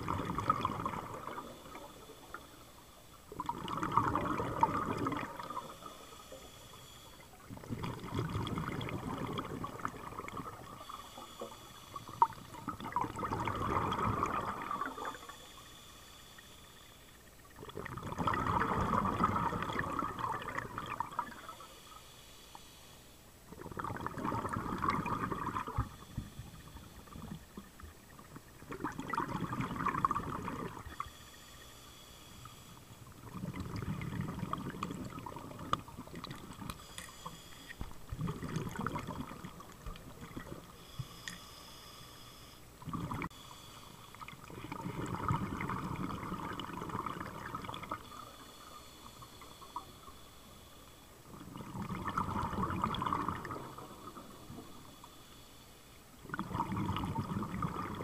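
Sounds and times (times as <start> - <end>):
bubbling underwater exhalation: 0.0 - 1.8, 3.3 - 5.8, 7.5 - 10.8, 12.2 - 15.2, 17.6 - 21.5, 23.5 - 26.0, 28.2 - 31.0, 33.2 - 36.7, 38.0 - 40.7, 42.8 - 43.3, 44.4 - 48.0, 51.3 - 54.3, 56.2 - 58.0
thin high hiss of inhalation: 5.5 - 7.4, 10.8 - 12.3, 14.9 - 17.2, 21.2 - 23.2, 25.7 - 27.4, 36.8 - 37.8, 40.7 - 42.6, 48.1 - 51.1.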